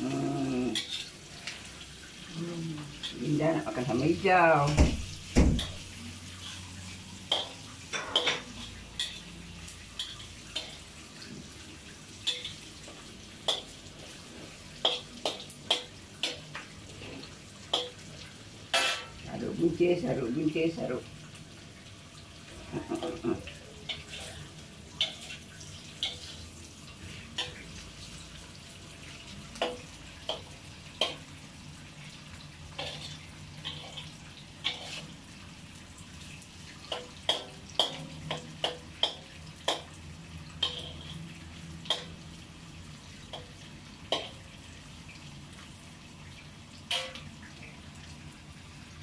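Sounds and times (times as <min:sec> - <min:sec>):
metal spatula clanking on wok: 0:17.7 - 0:18.0, 0:18.7 - 0:19.2, 0:36.9 - 0:40.0, 0:40.6 - 0:41.2, 0:41.8 - 0:42.2, 0:43.3 - 0:44.4, 0:46.9 - 0:47.3.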